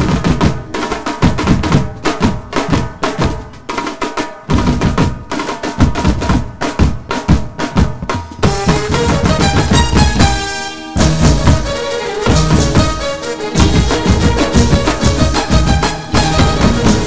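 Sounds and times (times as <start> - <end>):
drums beating heavy rhythm: 0.0 - 17.0.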